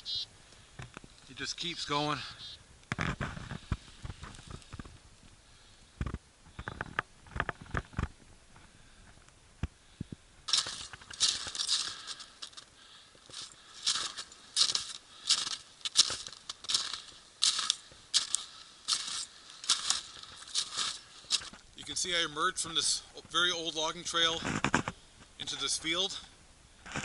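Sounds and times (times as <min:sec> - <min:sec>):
footsteps crunching through snow: 0:03.0 - 0:05.0, 0:10.5 - 0:26.2.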